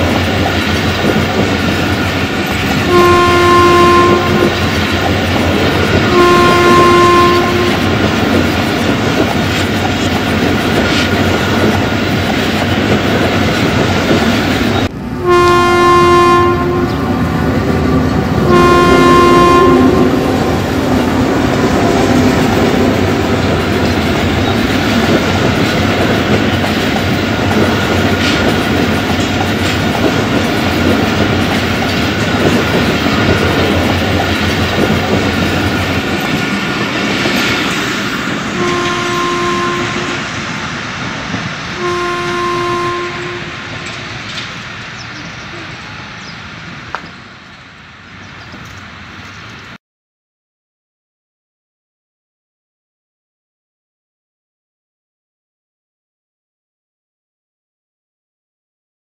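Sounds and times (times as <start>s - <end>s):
train wheels rumbling and clattering: 0.0s - 15.2s, 16.6s - 42.0s, 42.8s - 49.8s
locomotive horn blasts: 2.8s - 4.8s, 5.9s - 8.1s, 15.2s - 23.2s, 38.5s - 40.4s, 41.8s - 43.7s.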